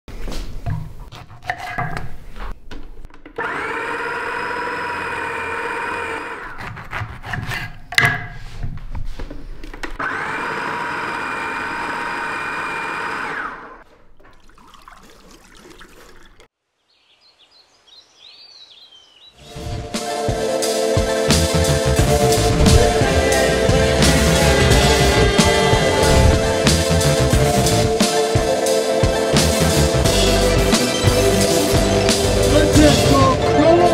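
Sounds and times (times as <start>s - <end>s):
fruit knocking in juicer: 3.1s - 8.4s, 10.0s - 13.6s
citrus juicer motor whine: 3.4s - 6.6s, 9.9s - 13.8s.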